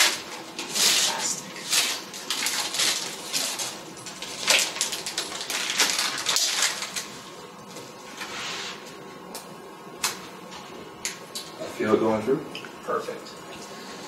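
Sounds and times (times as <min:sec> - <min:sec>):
plastic packaging rustling: 0:00.0 - 0:08.3.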